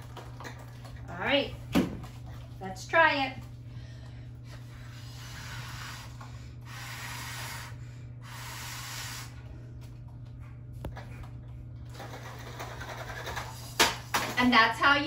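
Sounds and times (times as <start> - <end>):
blowing through a drinking straw: 4.9 - 9.4.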